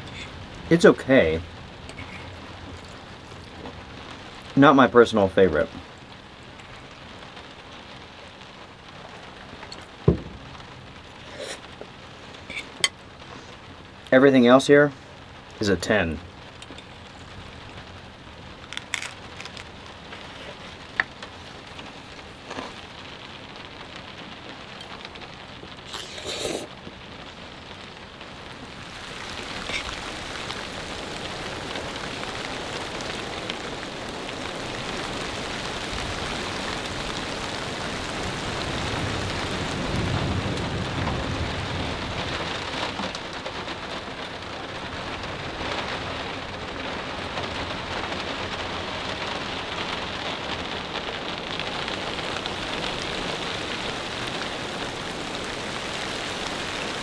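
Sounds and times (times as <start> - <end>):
heavy rain: 0.0 - 57.0
thunder rumble: 28.2 - 46.7.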